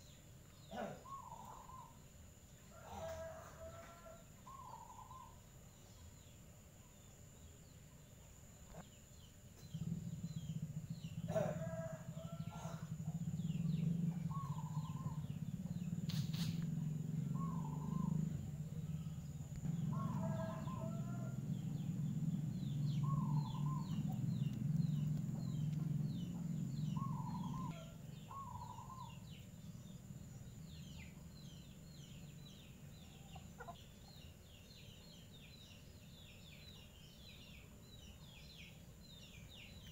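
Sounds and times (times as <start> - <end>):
low drone: 9.6 - 32.7.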